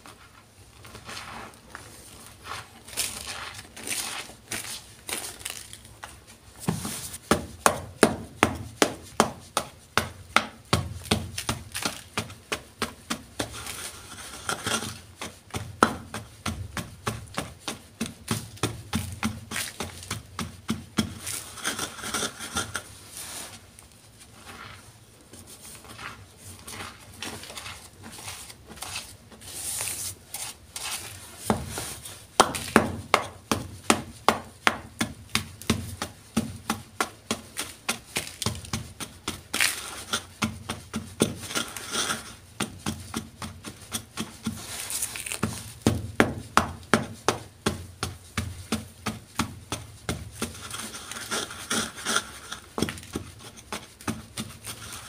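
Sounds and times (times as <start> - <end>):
gritty scraping sweeps: 0.1 - 7.2, 21.2 - 32.3
pestle grinding chalk: 6.6 - 23.6, 25.6 - 55.0
pestle crunching strikes: 32.4 - 39.8.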